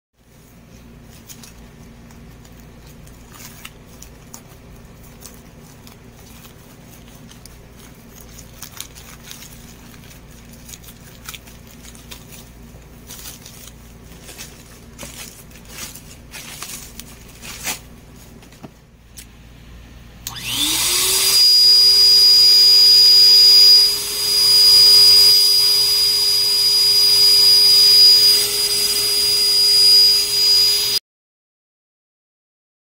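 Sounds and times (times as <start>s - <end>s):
plastic mailer rustling: 0.3s - 19.2s
scissors cutting package: 0.6s - 19.4s
electric balloon pump whining: 20.2s - 31.0s.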